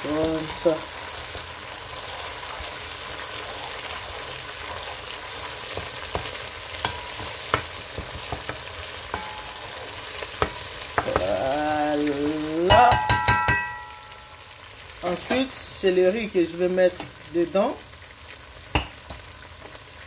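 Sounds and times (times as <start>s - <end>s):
food sizzling in oil: 0.0s - 20.0s
spatula scraping and tapping pan: 5.4s - 11.4s, 12.7s - 14.4s.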